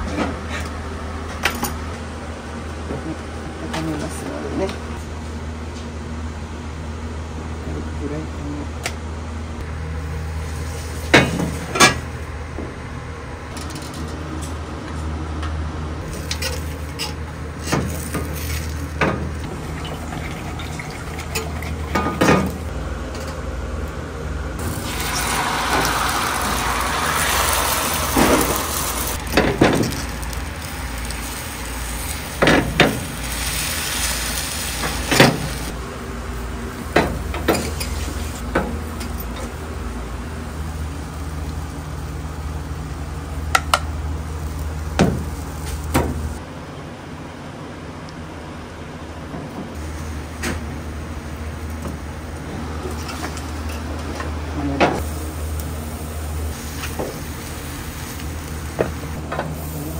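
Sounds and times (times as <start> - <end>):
egg sizzling in hot oil: 24.6 - 35.7.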